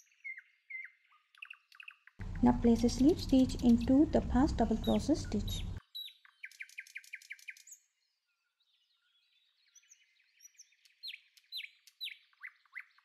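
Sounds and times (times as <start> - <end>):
birds chirping: 1.8 - 7.7.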